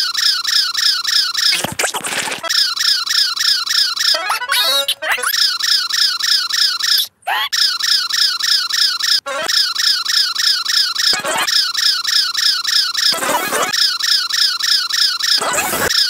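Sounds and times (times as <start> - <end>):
cartoon bunny squeaks: 0.0 - 16.0
high gliding vocal sounds: 4.2 - 5.4.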